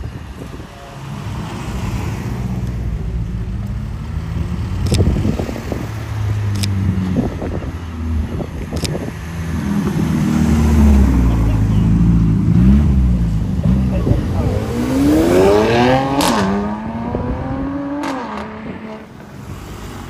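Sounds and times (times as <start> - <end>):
cars driving past slowly: 0.1 - 20.0
sharp clicks: 4.8 - 5.1, 6.5 - 6.8, 8.7 - 9.0.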